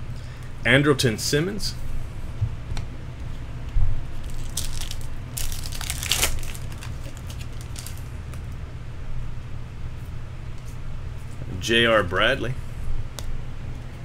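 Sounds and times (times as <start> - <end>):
low steady hum: 0.0 - 14.0
foil wrapper tearing and crinkling: 4.2 - 8.0.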